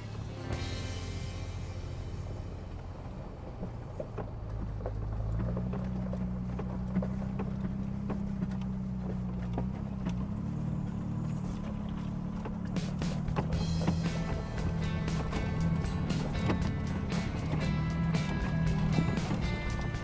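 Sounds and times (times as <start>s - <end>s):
pickup engine running: 0.0s - 20.0s.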